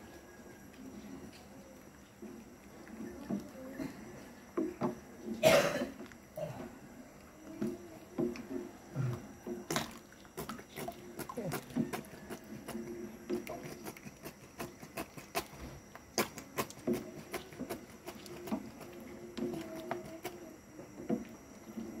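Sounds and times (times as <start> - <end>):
spatula stirring porridge pot: 10.3 - 22.0.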